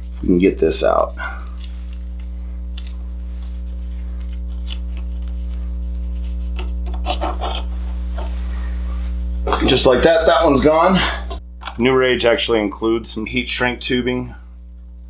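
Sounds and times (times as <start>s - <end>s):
low electrical hum: 0.0s - 15.0s
plastic and wire scratching: 2.8s - 8.3s.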